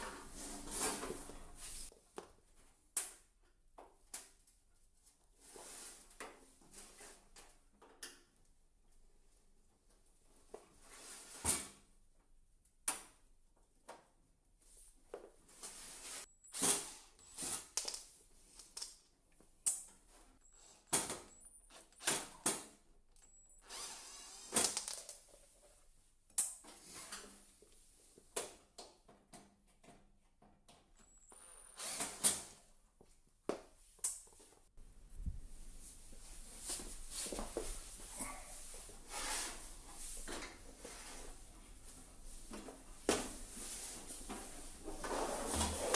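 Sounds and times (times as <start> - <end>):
cordless drill whining: 23.5 - 24.8.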